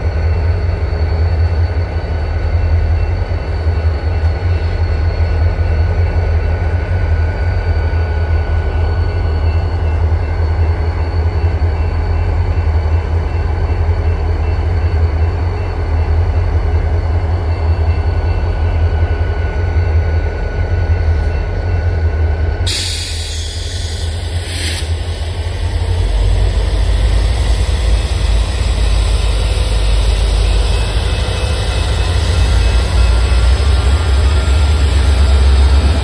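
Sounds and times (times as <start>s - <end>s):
diesel locomotive engine rumble: 0.0s - 36.0s
hiss: 22.7s - 26.6s.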